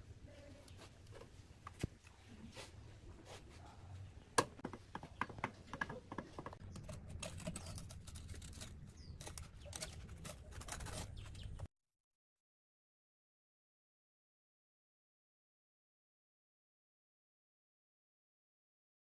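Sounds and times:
tapping and scraping wet cement: 4.4 - 11.7.

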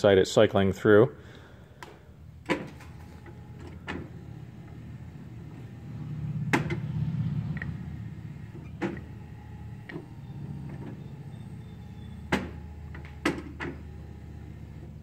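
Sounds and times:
espresso machine motors humming: 3.0 - 15.0.

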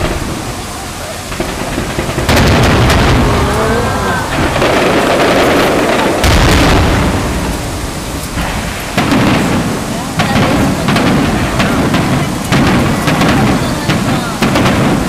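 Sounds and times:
continuous rumble: 0.0 - 15.0
fireworks booming and crackling: 0.0 - 15.0.

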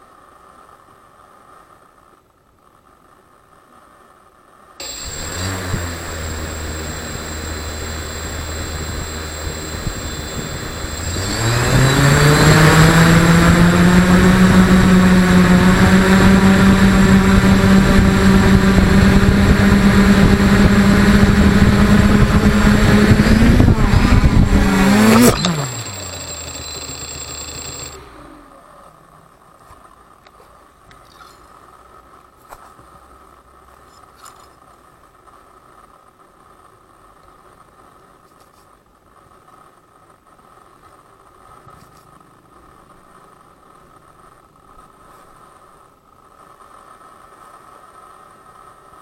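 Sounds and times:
small motor droning: 4.8 - 29.4.

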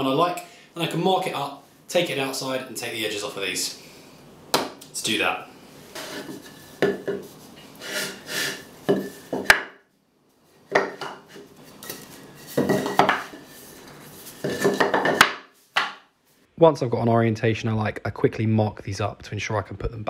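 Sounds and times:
wood knocking and scraping on wood: 5.9 - 7.4, 8.8 - 9.8, 10.6 - 16.0.

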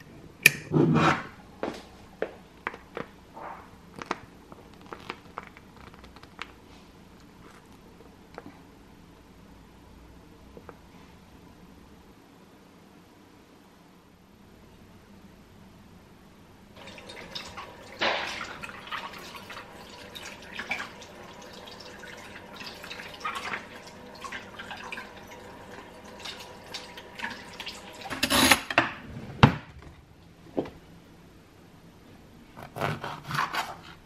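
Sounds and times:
tap water splashing: 16.8 - 28.2.

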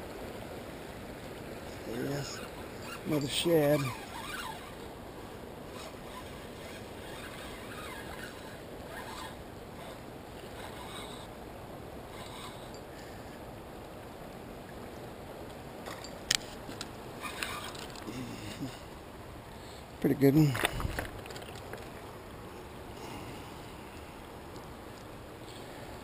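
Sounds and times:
river water rushing: 0.0 - 19.7.

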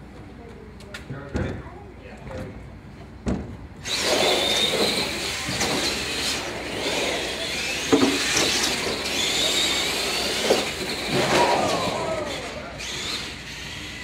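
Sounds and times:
electric motors and gears whining: 3.8 - 14.0.

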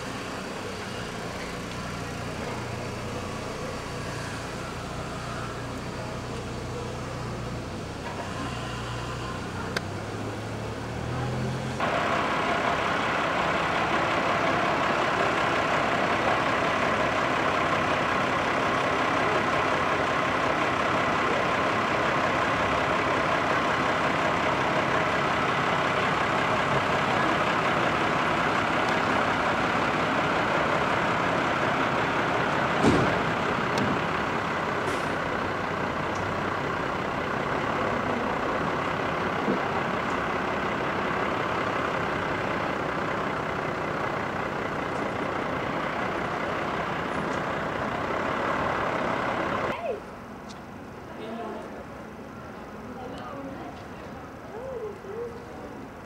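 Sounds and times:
heavy vehicle engine drone: 0.0 - 56.0
sharp knock: 32.8 - 33.2.

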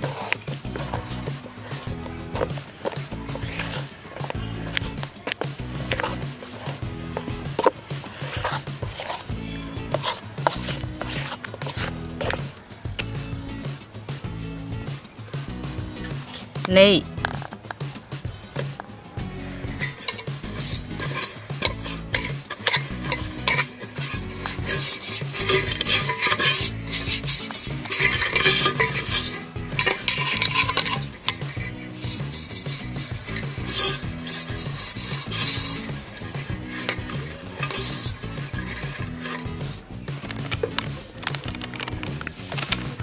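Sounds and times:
fingers rubbing inside pot: 0.0 - 13.6, 14.3 - 18.8, 19.4 - 43.0
background music: 0.0 - 43.0
spoon clinking against metal pot: 19.8 - 42.4.

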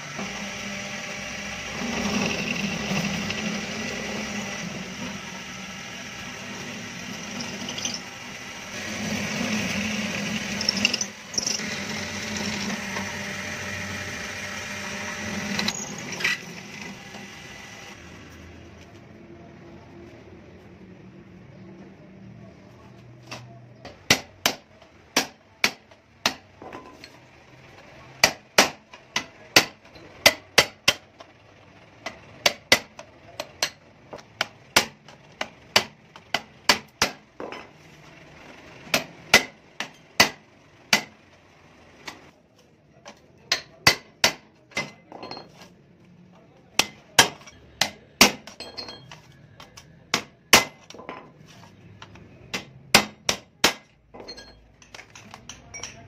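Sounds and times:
hammer striking steel punch: 28.2 - 31.1, 35.7 - 37.6, 38.9 - 41.1, 43.5 - 45.5, 46.8 - 49.0, 50.1 - 51.0, 52.5 - 54.6.

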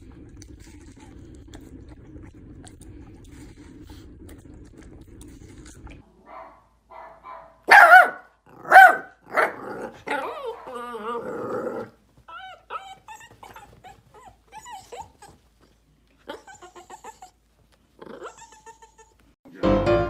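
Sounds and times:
puppy yipping and growling: 6.2 - 15.5, 16.2 - 17.4, 18.0 - 19.3.

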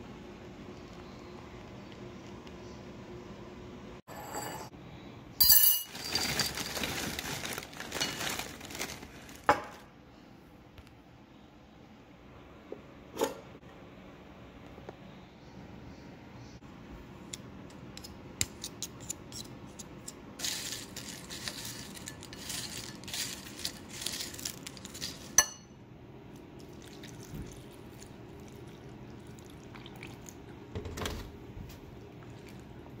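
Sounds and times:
cereal rustling: 5.9 - 9.8, 20.4 - 25.4
spoon clinking on bowl: 25.4 - 25.7.

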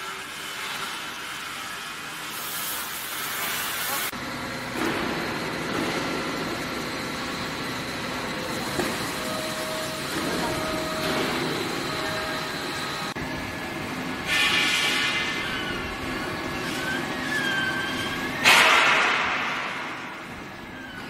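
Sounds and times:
mixer motor hum and whine: 4.1 - 18.5.

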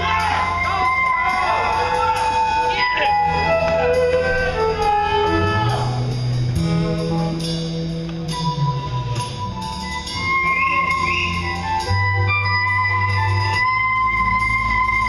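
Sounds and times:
electric guitar solo: 0.0 - 7.4
band playing low notes: 0.0 - 15.0.

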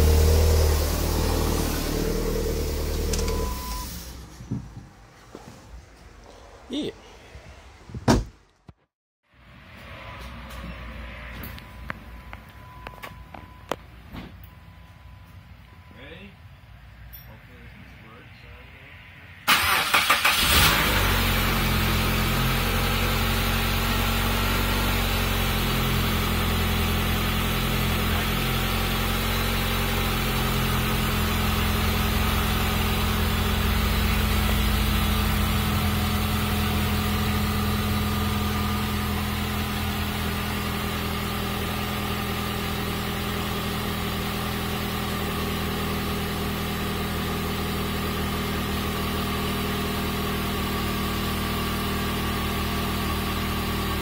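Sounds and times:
car engine idling: 0.0 - 4.3, 19.4 - 54.0
car engine cranking: 0.0 - 4.5, 19.5 - 21.8.

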